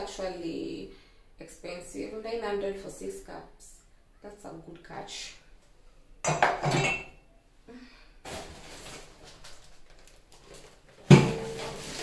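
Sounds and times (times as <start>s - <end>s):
objects clattering: 8.2s - 12.0s
rustling: 8.2s - 12.0s.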